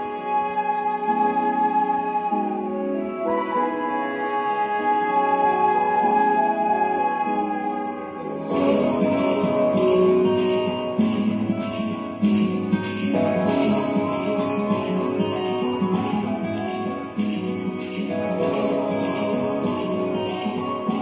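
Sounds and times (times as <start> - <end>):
strummed guitar music: 8.1 - 21.0.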